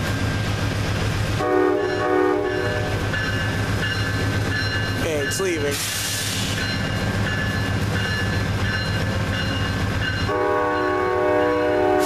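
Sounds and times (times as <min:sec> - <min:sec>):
diesel locomotive running: 0:00.0 - 0:12.0
multi-tone train horn: 0:01.4 - 0:03.0, 0:10.3 - 0:12.0.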